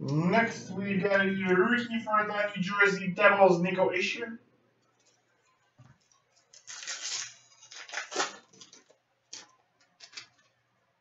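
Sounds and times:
card pack crinkling: 6.4 - 10.6.

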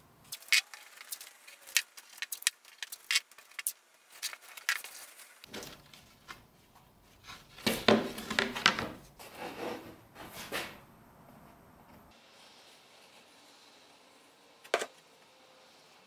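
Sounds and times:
wooden boards handled on workbench: 7.5 - 10.8.

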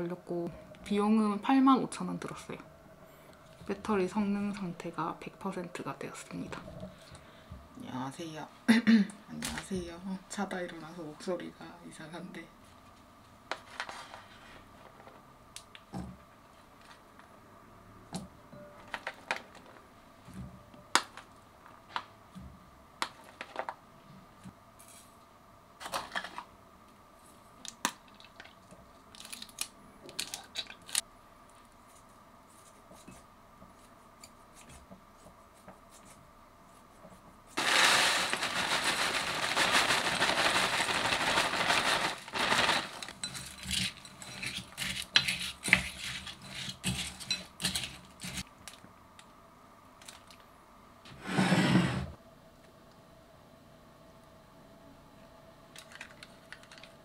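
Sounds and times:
plastic bag crinkling: 29.2 - 31.0, 37.6 - 44.0.

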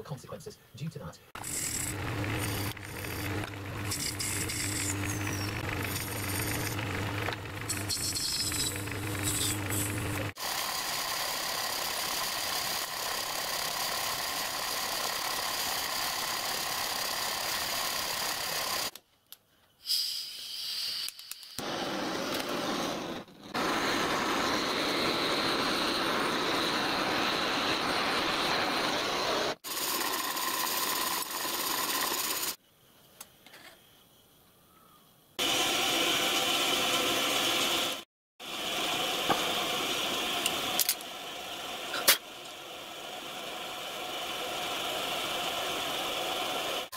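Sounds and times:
metal lathe running: 1.4 - 18.9, 29.7 - 32.6
blowtorch hissing: 9.2 - 18.9, 19.8 - 30.8.

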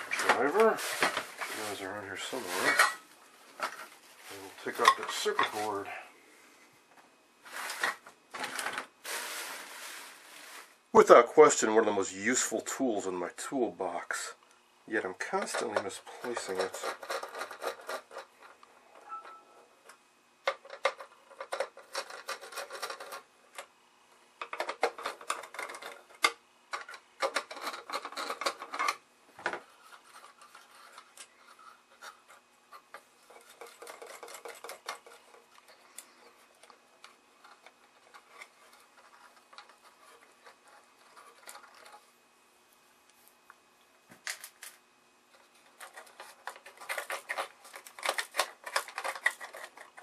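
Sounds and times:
metallic clicks and scrapes: 15.4 - 23.7, 24.4 - 29.0, 29.8 - 42.1, 44.3 - 50.0.

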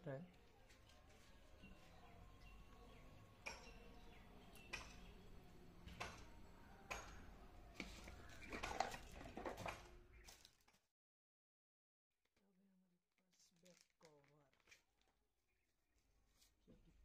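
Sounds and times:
bubble wrap crinkling: 13.1 - 17.0.

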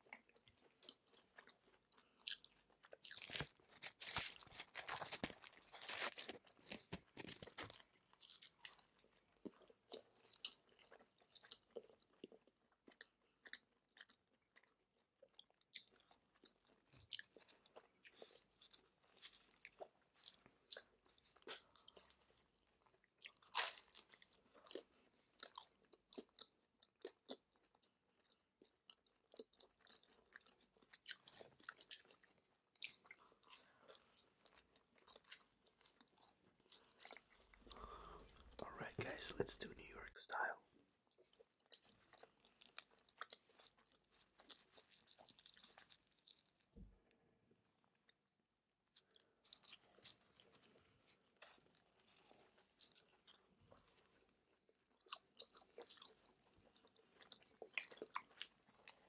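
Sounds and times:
quiet chewing: 0.0 - 59.0
pizza crust crunching: 2.3 - 9.1.

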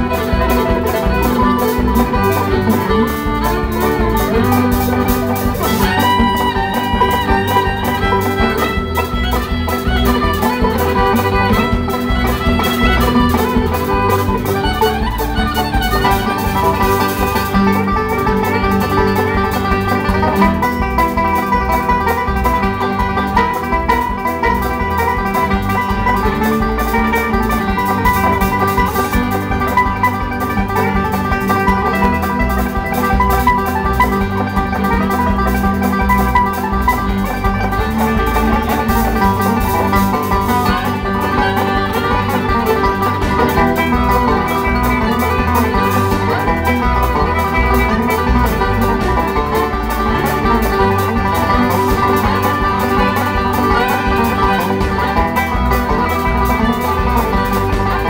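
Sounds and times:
banjo picking: 0.0 - 58.0
drum kit: 0.0 - 58.0
electric guitar: 0.0 - 58.0
fiddle: 0.0 - 58.0.

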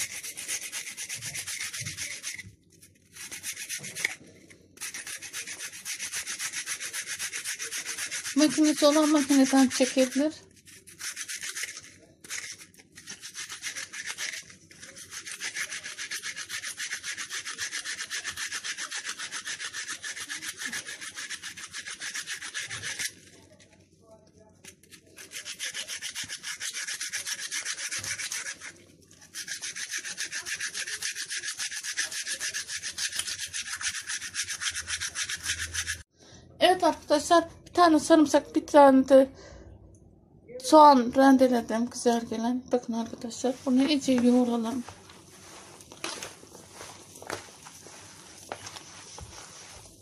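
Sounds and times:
onion grating on hand grater: 0.0 - 23.4, 24.8 - 36.1.

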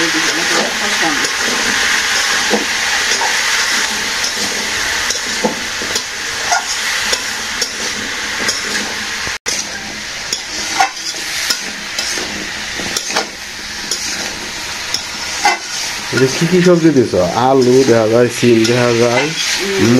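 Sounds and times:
metal spatula scraping a pan: 0.0 - 19.9
vegetables sizzling in a pan: 0.0 - 19.9.

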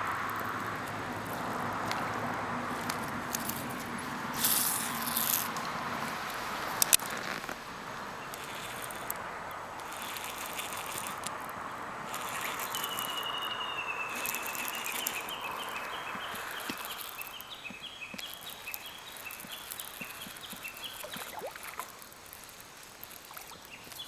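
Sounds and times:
steady background noise: 0.0 - 24.0
sharp clicks: 6.3 - 7.6, 8.2 - 24.0
fish splashing at surface: 21.0 - 23.7.

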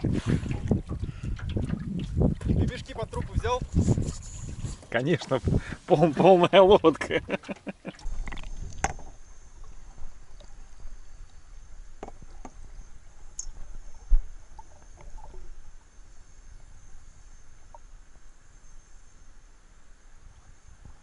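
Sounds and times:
sharp clicks underwater: 0.0 - 4.6, 7.4 - 10.6, 13.3 - 15.5
muffled underwater rumble: 0.0 - 4.8.

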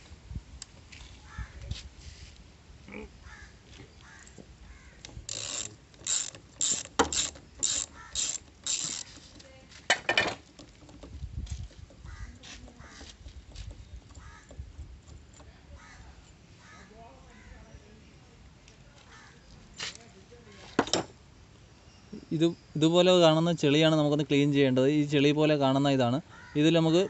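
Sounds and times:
ratchet wrench clicking: 5.0 - 9.5.

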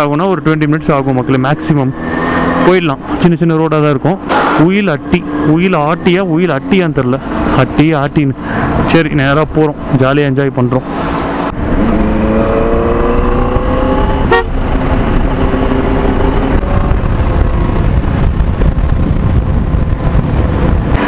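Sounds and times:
motorcycle engine accelerating: 0.0 - 8.9, 10.8 - 21.0
wind on microphone: 11.5 - 21.0.

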